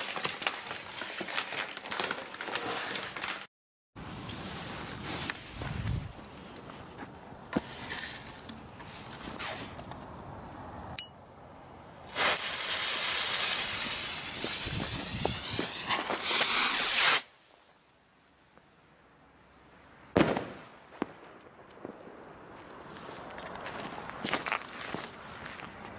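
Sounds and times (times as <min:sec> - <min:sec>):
firework rocket hissing: 0:12.0 - 0:17.6.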